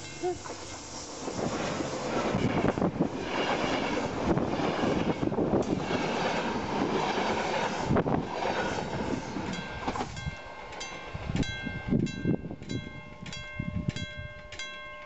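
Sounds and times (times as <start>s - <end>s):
level crossing warning bell: 0.0s - 1.0s, 9.5s - 15.0s
train wheels on track: 0.0s - 15.0s.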